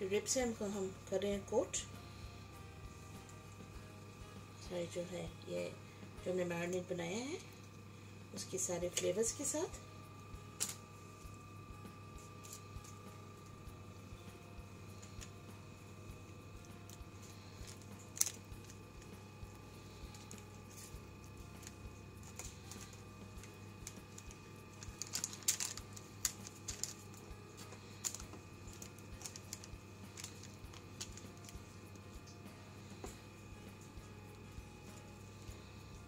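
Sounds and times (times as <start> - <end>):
steady low hum: 0.0 - 36.0
baking paper crackling: 16.6 - 33.2
small wet clicks: 16.7 - 19.2, 21.6 - 33.2.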